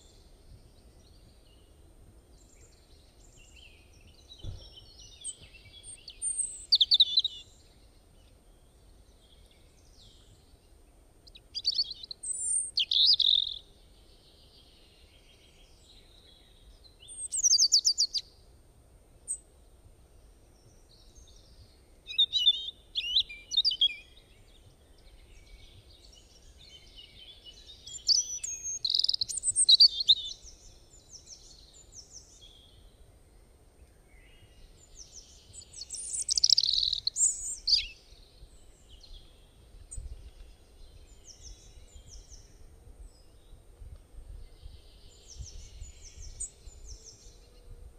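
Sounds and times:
bird chirping and singing: 2.4s - 7.7s, 11.3s - 18.2s, 20.9s - 32.8s, 34.2s - 43.6s.

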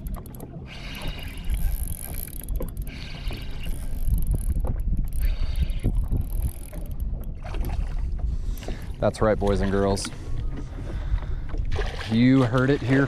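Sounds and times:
fishing reel cranking: 0.0s - 7.2s
water lapping at boat hull: 0.0s - 13.0s
wind rumble on microphone: 0.0s - 13.0s.

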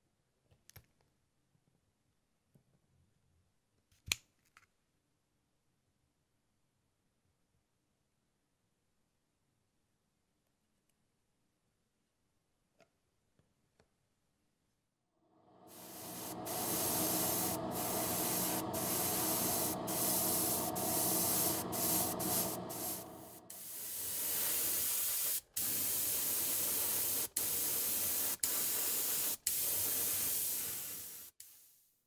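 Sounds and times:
low hum: 15.3s - 23.8s
airbrush spraying hiss: 15.4s - 31.8s.

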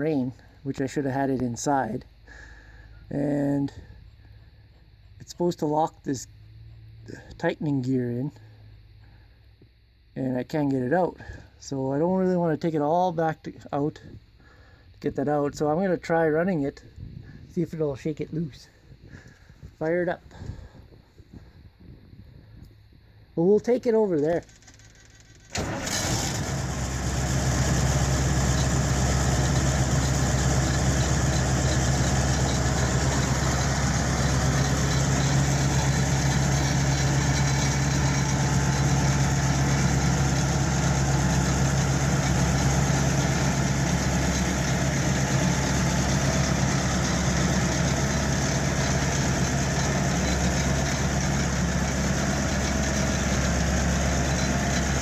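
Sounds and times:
diesel engine idling: 1.7s - 7.4s, 25.5s - 55.0s.

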